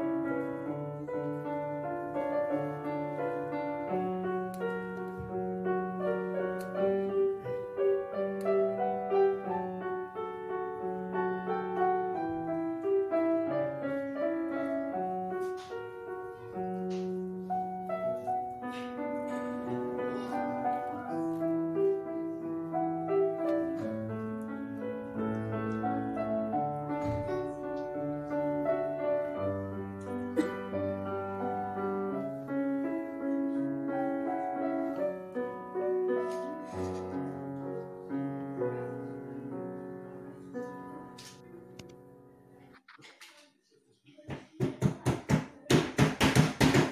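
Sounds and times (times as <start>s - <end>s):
background piano music: 0.0s - 42.7s.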